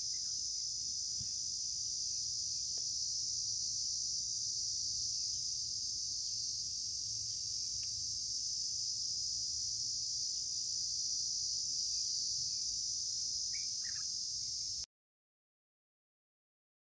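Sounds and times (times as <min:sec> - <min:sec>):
high-pitched insect drone: 0:00.0 - 0:14.9
short bird chirps: 0:13.5 - 0:14.1.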